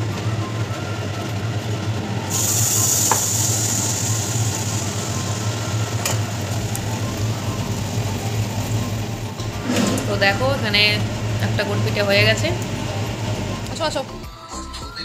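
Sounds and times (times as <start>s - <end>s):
batter sizzling in hot oil: 2.3s - 13.8s.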